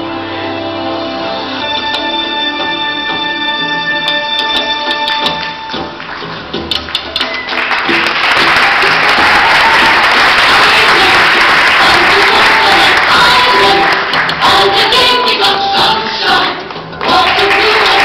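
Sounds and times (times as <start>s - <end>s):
music: 0.0s - 18.0s
audience applauding: 5.1s - 14.6s, 17.0s - 18.0s.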